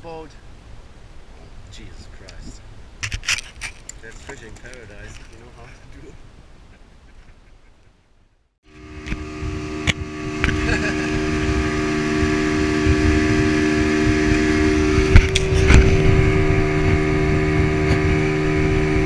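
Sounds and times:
outboard motor running: 0:08.7 - 0:19.0.

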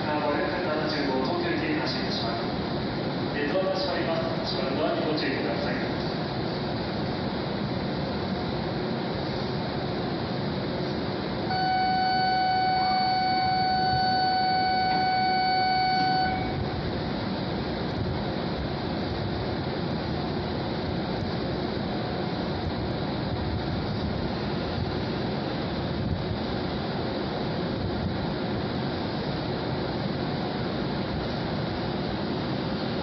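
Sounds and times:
train humming: 0:00.0 - 0:33.0
electronic warning tone: 0:11.5 - 0:16.6.

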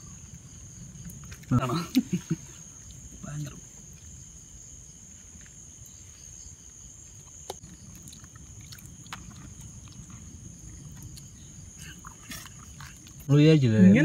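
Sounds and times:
night insects chirring: 0:00.0 - 0:14.0.

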